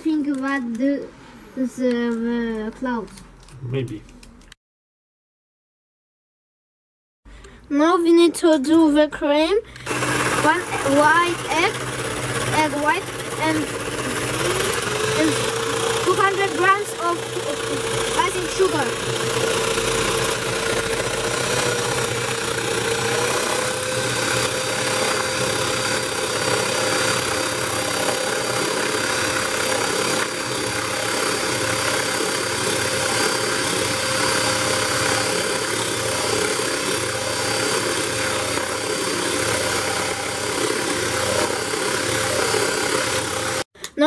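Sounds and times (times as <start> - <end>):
electric hand mixer whining: 9.8 - 43.7.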